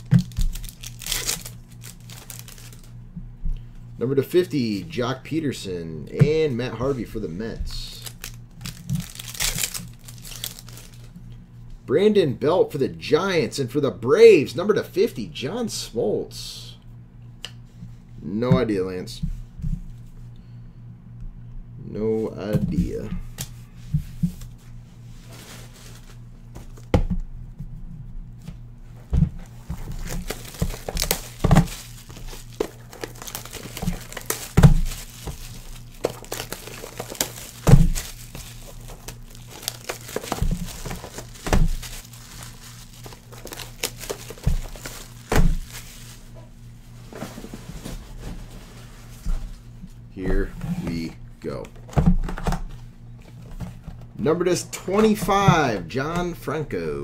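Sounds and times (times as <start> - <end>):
cardboard packaging rustling: 0.0 - 3.0, 7.8 - 11.2, 29.3 - 49.7.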